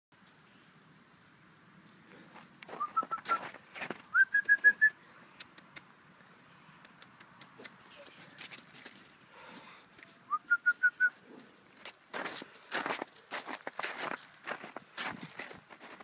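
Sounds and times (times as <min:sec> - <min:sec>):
person whistling: 0:02.8 - 0:03.4, 0:04.1 - 0:05.0, 0:10.3 - 0:11.2.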